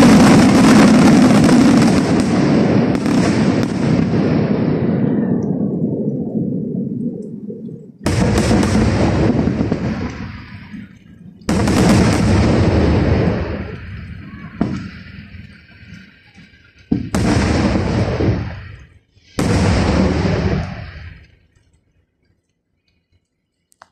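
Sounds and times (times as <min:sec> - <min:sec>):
firework shells booming: 0:00.0 - 0:05.8, 0:08.0 - 0:21.4.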